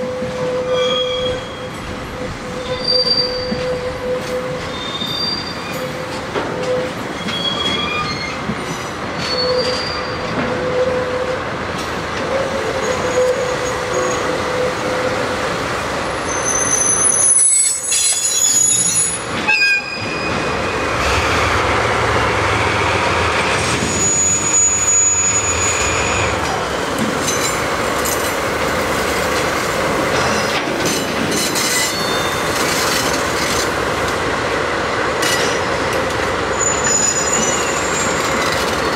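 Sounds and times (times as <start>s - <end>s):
diesel locomotives running: 0.0s - 38.9s
high-pitched wheel squeals: 0.5s - 1.8s, 2.5s - 8.4s, 9.2s - 11.0s, 16.2s - 20.9s, 23.6s - 26.7s, 31.6s - 32.6s, 36.5s - 38.5s.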